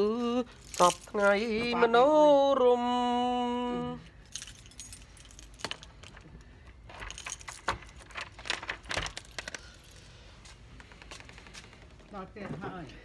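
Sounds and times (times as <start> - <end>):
keys jangling: 0.4 - 1.8, 4.0 - 10.1.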